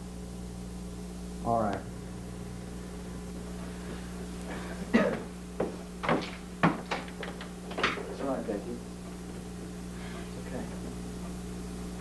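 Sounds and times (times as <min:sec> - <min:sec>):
steady low hum: 0:00.0 - 0:12.0
sharp knocks and clicks: 0:05.6 - 0:08.3.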